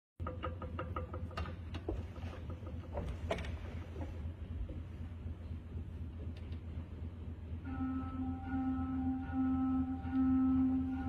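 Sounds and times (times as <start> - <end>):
low hum: 0.2 - 11.0.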